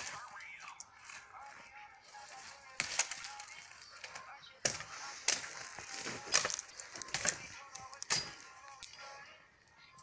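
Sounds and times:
wood splintering and cracking: 2.8 - 8.9.

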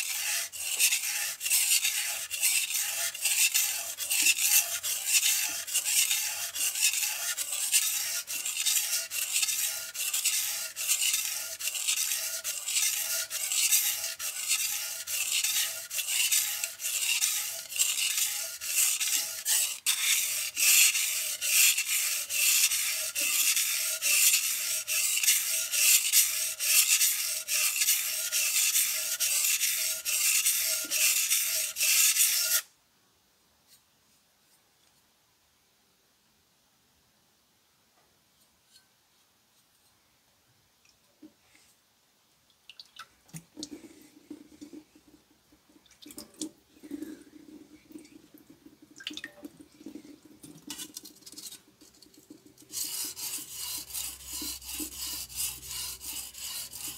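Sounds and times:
knife scraping on whetstone: 0.0 - 32.7, 50.7 - 56.9.

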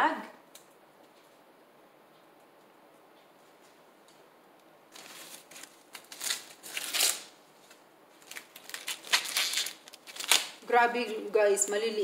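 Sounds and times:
corn husk tearing: 4.9 - 7.4, 8.2 - 10.7.

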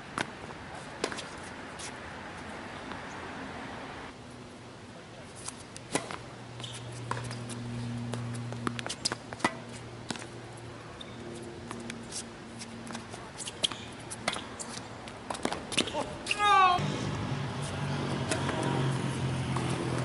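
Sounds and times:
racket hitting tennis ball: 5.4 - 10.4, 11.6 - 20.0
ball bouncing: 18.1 - 20.0.

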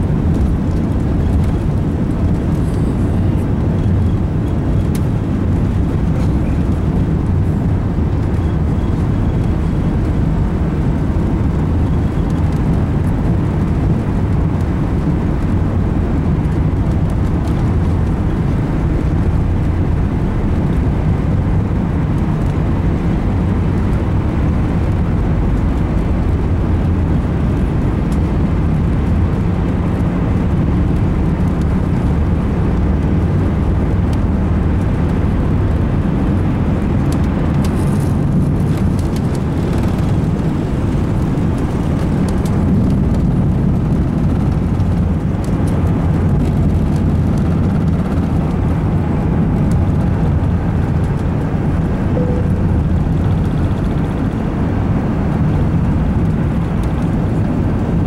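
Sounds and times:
aircraft cabin low rumble: 0.0 - 58.0.

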